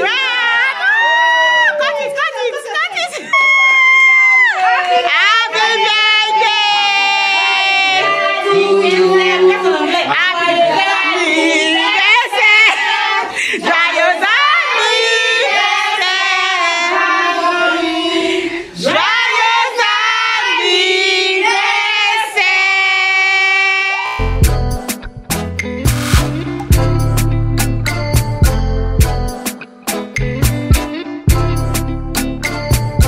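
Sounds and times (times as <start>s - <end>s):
children and women singing: 5.0s - 24.3s
music with heavy bass beat: 24.2s - 33.0s.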